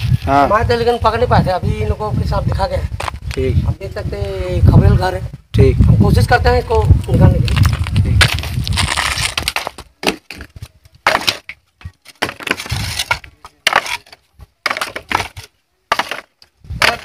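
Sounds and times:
clay roof tiles clattering: 7.5s - 17.0s
wooden battens cracking and scraping: 7.5s - 17.0s.

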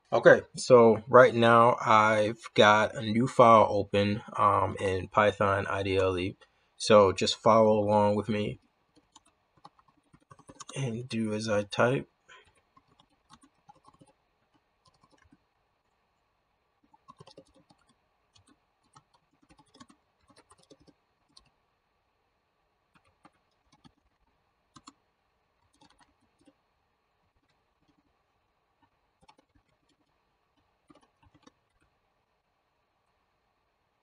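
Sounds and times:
faint keyboard typing: 7.5s - 16.0s, 16.8s - 21.7s, 22.8s - 32.0s.

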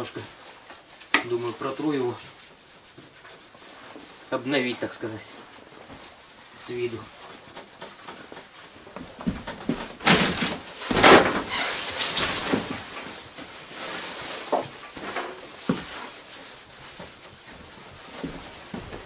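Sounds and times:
rag rubbing plastic cover: 10.0s - 19.0s.

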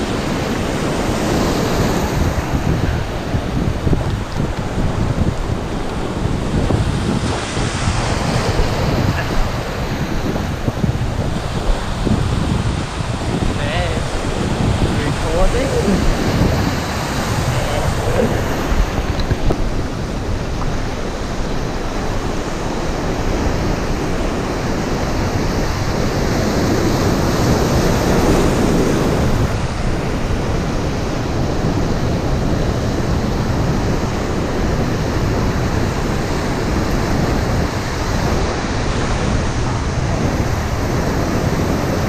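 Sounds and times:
breaking surf: 0.0s - 42.0s.

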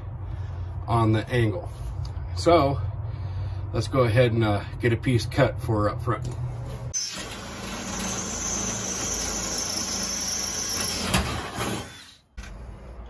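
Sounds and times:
cordless drill boring metal: 7.0s - 12.2s.

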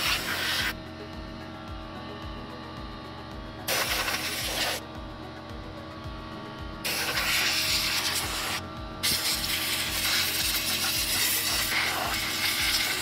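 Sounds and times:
compressed air hissing from blow-gun: 0.0s - 0.8s, 3.7s - 4.8s, 6.9s - 13.0s.

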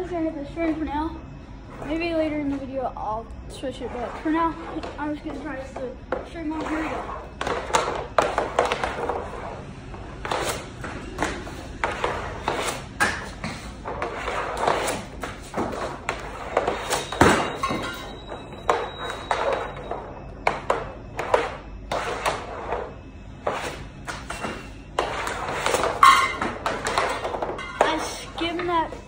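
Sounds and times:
pucks hitting net and wall: 3.6s - 29.0s
stick hitting hockey puck: 6.1s - 9.2s, 23.4s - 28.7s.

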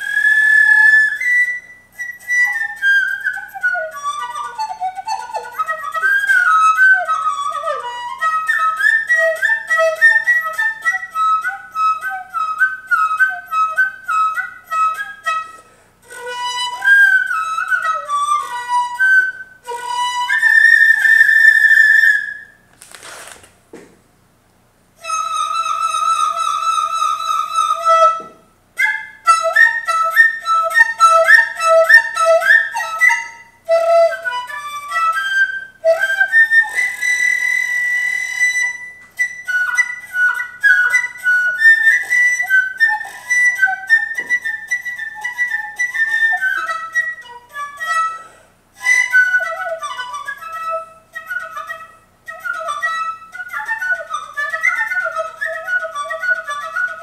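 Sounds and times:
bamboo flute folk melody: 0.0s - 23.4s, 25.0s - 57.0s.

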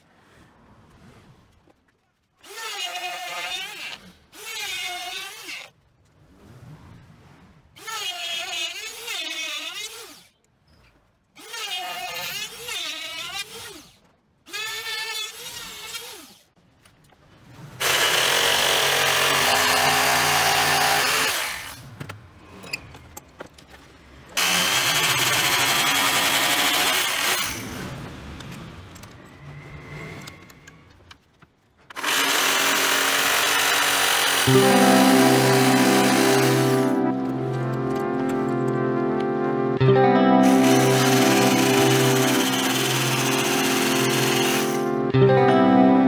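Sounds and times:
jigsaw cutting wood: 17.8s - 21.8s, 24.4s - 27.6s, 31.9s - 37.0s, 40.4s - 44.9s
trim router whining: 32.0s - 38.3s, 40.3s - 44.8s.

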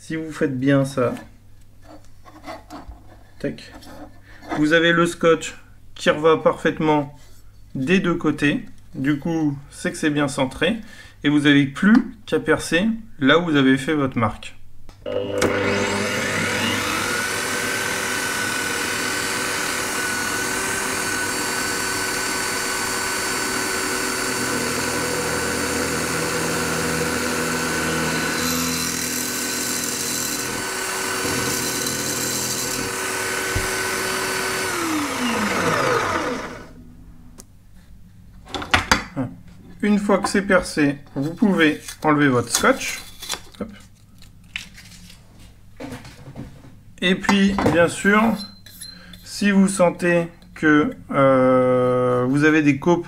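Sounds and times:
drill bit drilling through metal: 15.1s - 36.7s
drill press whining: 15.1s - 36.8s.

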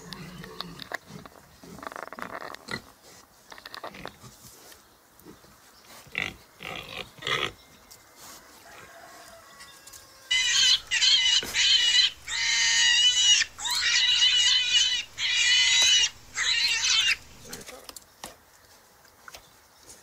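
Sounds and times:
pig squealing: 10.2s - 17.6s.

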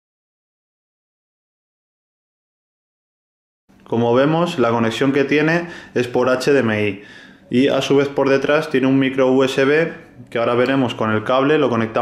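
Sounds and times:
man speaking: 3.9s - 12.0s.

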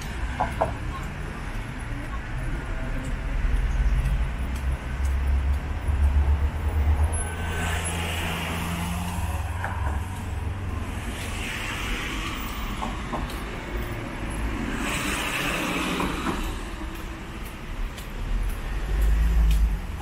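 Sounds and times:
car engines rumbling: 0.0s - 20.0s
tyre hiss on wet road: 7.3s - 13.1s, 14.4s - 16.9s.

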